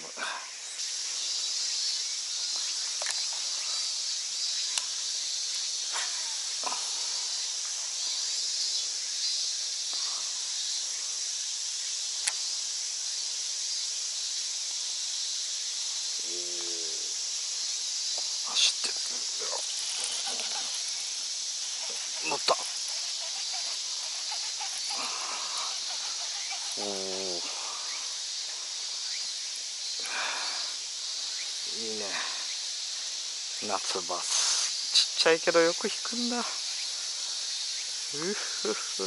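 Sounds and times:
insect chorus hissing: 0.0 - 39.0
faint clicks: 12.2 - 12.4.

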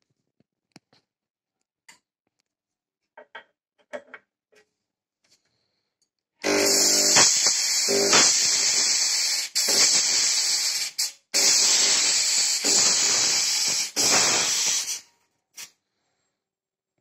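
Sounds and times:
fog machine hissing: 6.4 - 15.1.

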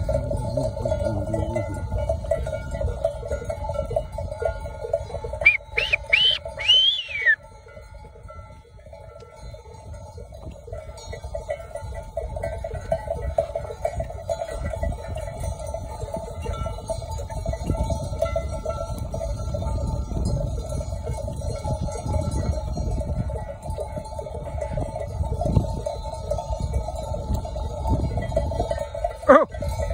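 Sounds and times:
hooves rumbling on dry ground: 0.0 - 29.9
sheep bells clanking: 0.0 - 29.9
whistles: 5.4 - 7.4.

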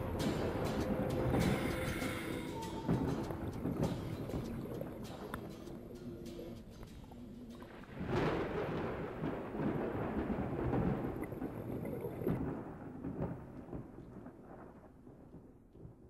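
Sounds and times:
thunderclap rumbling: 0.0 - 6.8, 7.5 - 16.0.

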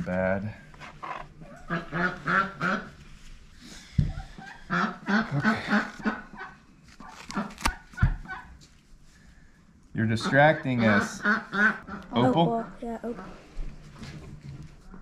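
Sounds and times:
duck quacking: 4.7 - 6.5, 10.2 - 12.2.

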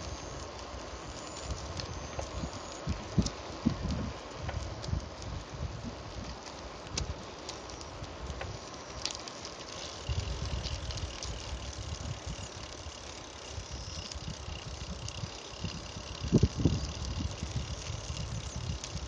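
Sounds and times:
wind buffeting microphone: 0.0 - 9.2, 10.0 - 19.0
bicycle riding on paved path: 0.0 - 19.0.

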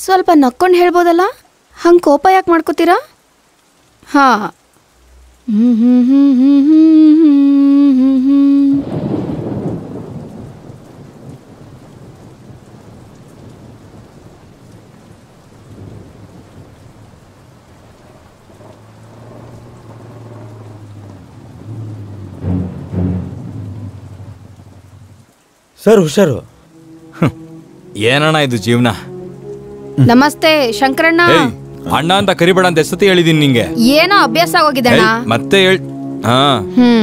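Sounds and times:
heavy rain: 0.0 - 37.0
woman humming: 5.4 - 9.0, 30.0 - 31.6, 34.2 - 35.2, 36.7 - 37.0
thunderclap rumbling: 8.2 - 35.3
motorcycle engine droning: 17.9 - 25.3.

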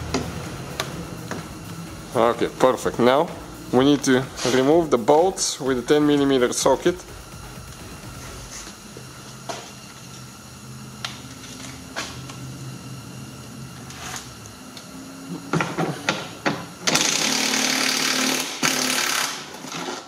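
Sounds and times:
cordless power tool running: 0.0 - 20.0.

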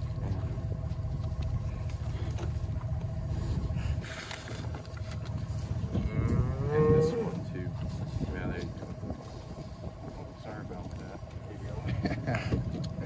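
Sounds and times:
wind buffeting microphone: 0.0 - 13.0
cow mooing: 6.0 - 7.5.

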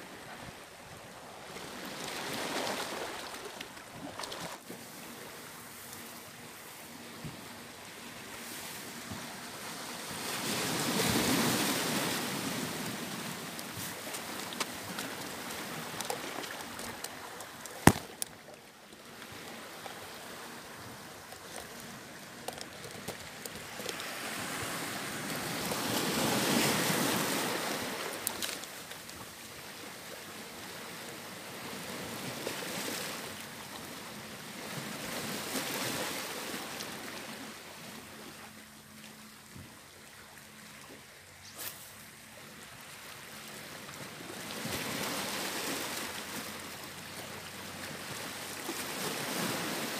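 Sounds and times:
sea waves washing on rocks: 8.4 - 29.3, 44.4 - 49.9.

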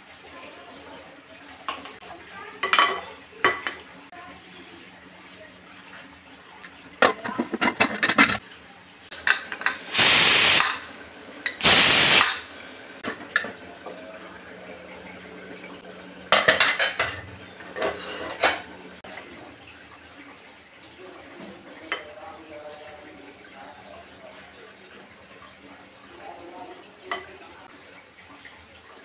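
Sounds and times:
pressure cooker whistle hissing: 9.6 - 10.9, 11.6 - 12.5.

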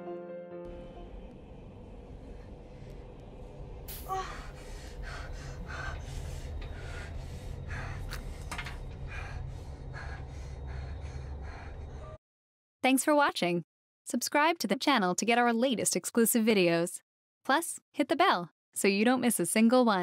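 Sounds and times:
low steady hum: 0.7 - 12.2
person breathing heavily and gasping: 3.9 - 12.2.

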